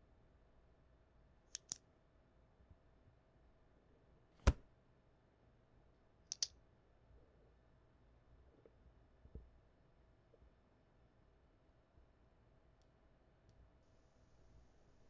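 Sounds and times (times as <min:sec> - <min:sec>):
small clicks: 0:01.5 - 0:01.8, 0:06.3 - 0:06.6.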